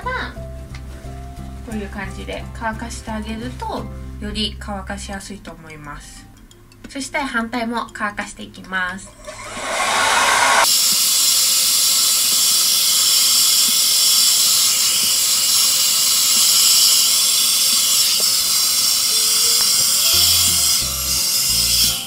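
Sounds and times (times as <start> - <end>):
hair dryer blowing: 9.1 - 16.2.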